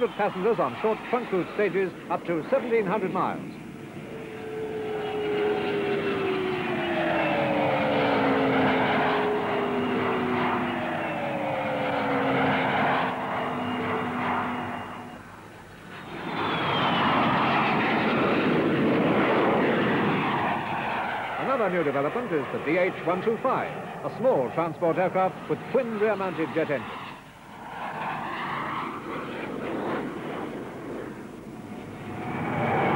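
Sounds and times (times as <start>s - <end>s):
jet airliner flying past: 0.0s - 32.9s.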